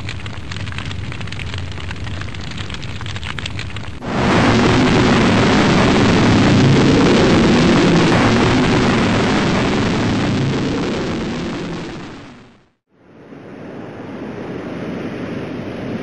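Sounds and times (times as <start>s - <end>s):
large fire roaring: 3.8s - 12.6s.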